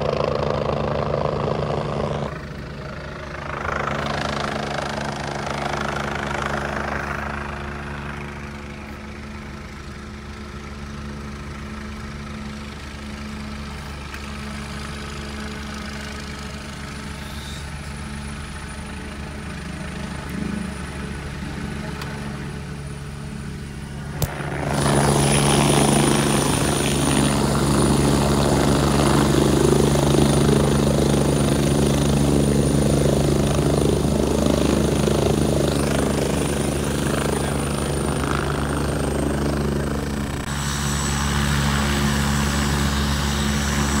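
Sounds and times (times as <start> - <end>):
helicopter rotor and engine drone: 0.0 - 44.0
high-pitched whine: 39.4 - 44.0.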